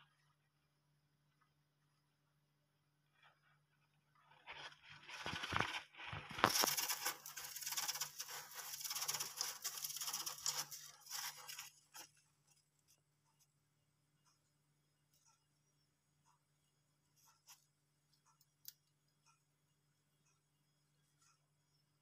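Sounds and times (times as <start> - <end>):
hamster scratching in bedding: 4.4 - 12.2.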